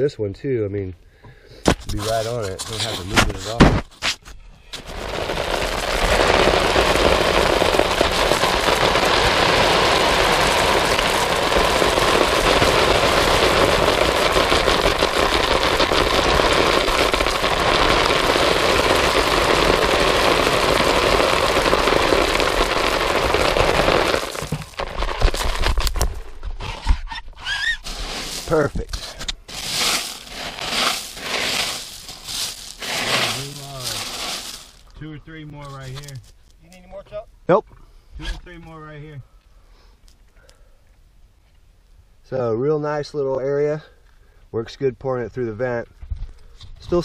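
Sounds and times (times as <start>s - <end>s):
gravel pouring into plastic bucket: 1.8s - 3.6s, 4.8s - 26.2s, 27.6s - 35.0s
stones clattering: 22.7s - 26.5s, 27.8s - 35.0s.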